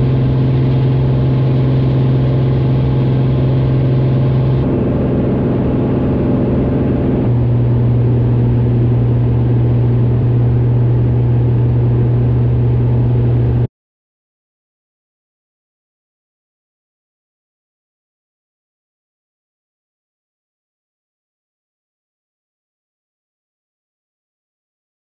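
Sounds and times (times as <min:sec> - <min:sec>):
airplane engine droning in cabin: 0:00.0 - 0:13.7.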